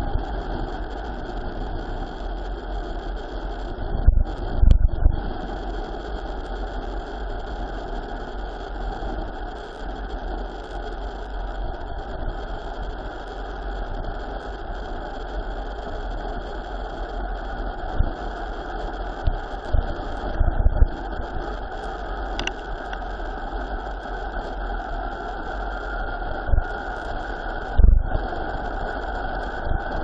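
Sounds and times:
wind rushing over microphone: 3.6s - 5.9s, 19.2s - 30.0s
bike tyre rumble: 18.8s - 30.0s.

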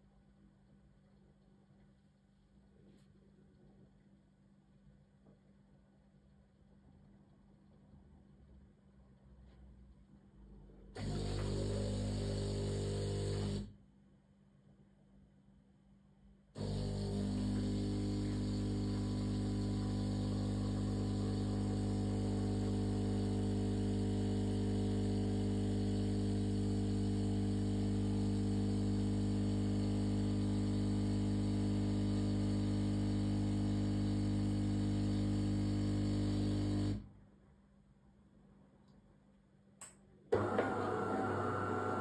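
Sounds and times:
coffee machine pump humming: 11.0s - 13.7s, 16.6s - 37.0s, 40.4s - 42.0s
faint click: 39.8s - 40.4s.

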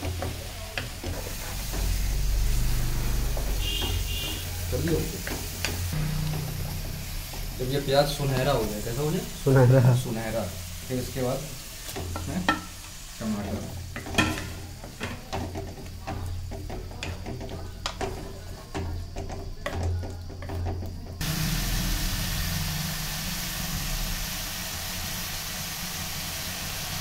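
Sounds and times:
spatula scraping a pan: 0.0s - 5.9s
food frying sizzle: 0.0s - 27.0s
steady sizzling hiss: 0.0s - 27.0s.

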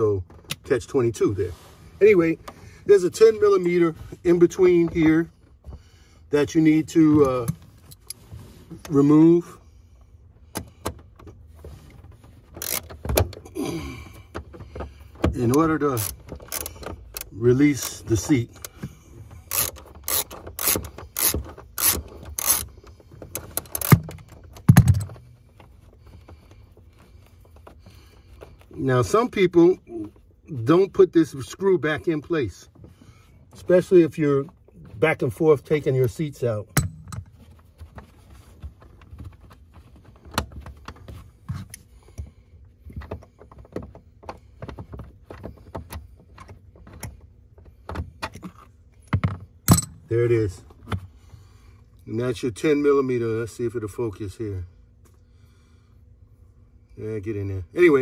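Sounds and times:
ratchet wrench clicking: 12.6s - 12.9s, 16.0s - 18.0s, 19.5s - 22.8s, 23.6s - 24.2s.

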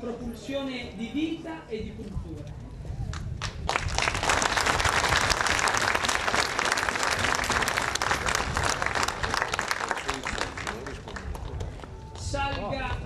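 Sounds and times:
crowd applauding: 3.4s - 12.3s.

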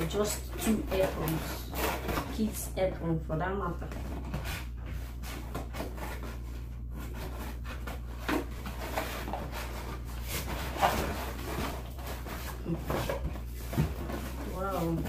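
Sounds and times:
cardboard and tape crackling: 0.0s - 15.0s
low steady hum: 0.0s - 15.0s
scissors cutting cardboard: 0.2s - 2.6s.

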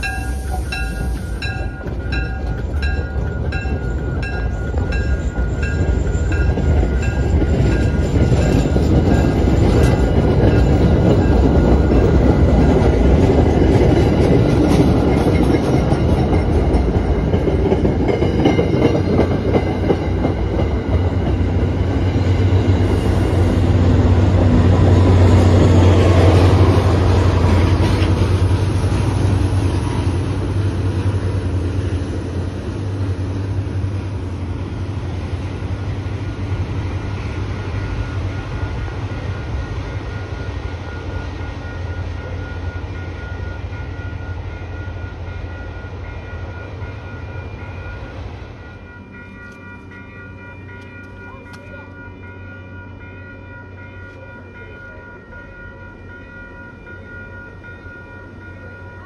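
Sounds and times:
train wheels clacking on rails: 0.0s - 33.8s.

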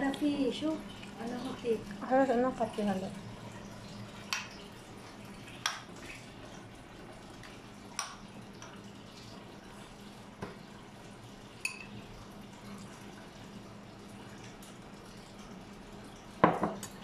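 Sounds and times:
low steady hum: 0.0s - 17.0s
metal spoons clinking on dishes: 11.6s - 11.9s.

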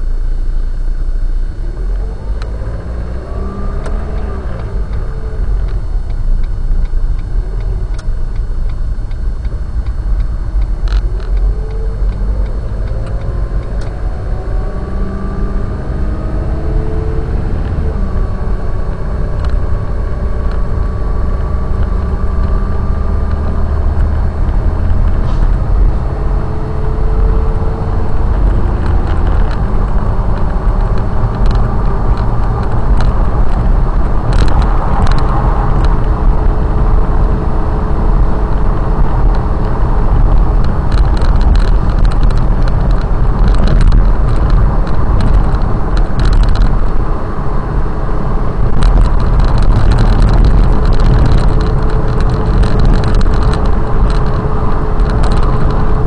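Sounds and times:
car engine and road rumble: 0.0s - 56.0s
sharp clicks: 3.8s - 14.8s, 24.4s - 37.4s.

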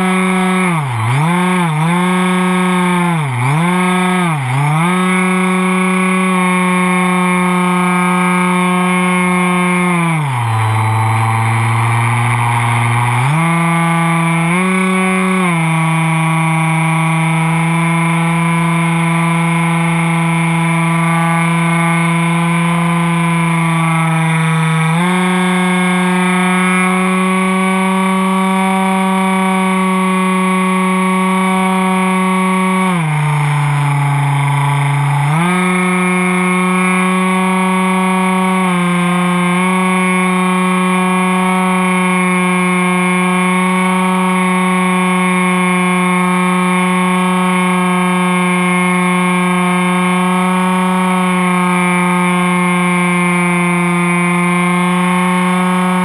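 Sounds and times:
electric motor and propeller: 0.0s - 56.0s.

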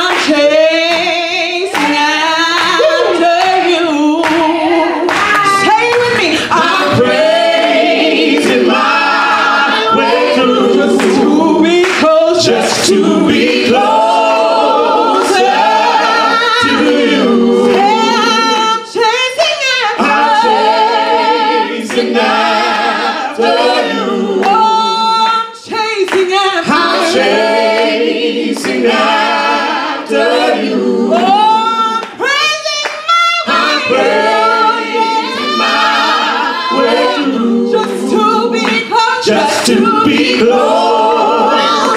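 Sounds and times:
choir singing in harmony: 0.0s - 41.9s.

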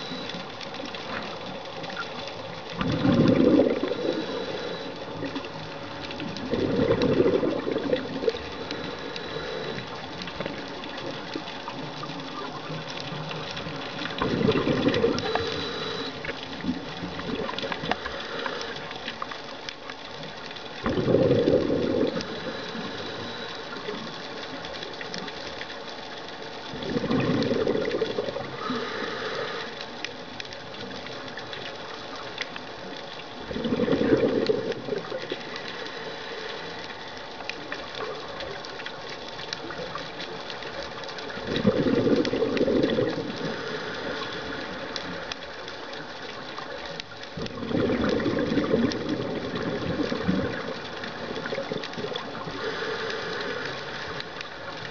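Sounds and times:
steady underwater hiss: 0.0s - 54.9s
exhaled bubbles rushing: 2.7s - 9.0s, 12.4s - 18.1s, 20.8s - 24.0s, 26.7s - 28.7s, 33.4s - 35.7s, 41.3s - 43.6s, 47.4s - 52.6s.

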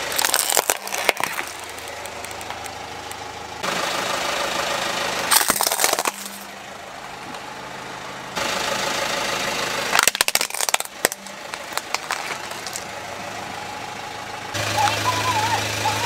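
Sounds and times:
plastic toys cracking under tyre: 0.0s - 2.8s, 5.3s - 6.5s, 9.9s - 12.9s
car engine idling: 0.0s - 16.0s.

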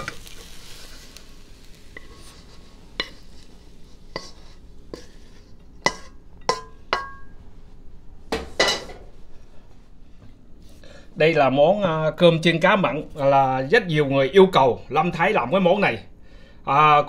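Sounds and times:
pan sizzle: 0.0s - 9.3s.

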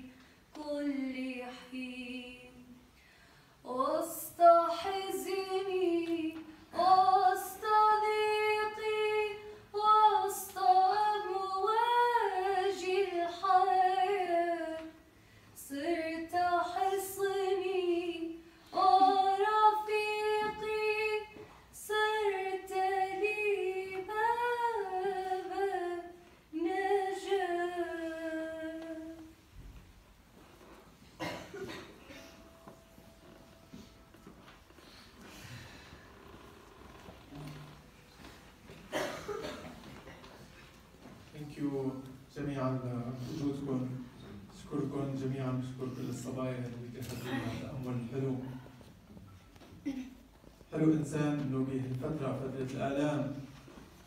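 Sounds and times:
woman singing unaccompanied: 0.0s - 2.8s, 3.7s - 15.0s, 15.6s - 29.4s.

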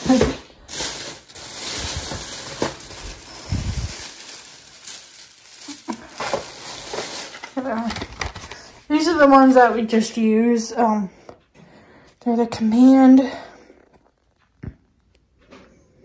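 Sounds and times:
hand rummaging through cardboard boxes: 0.0s - 8.7s
plastic bag rustling: 0.0s - 10.0s.

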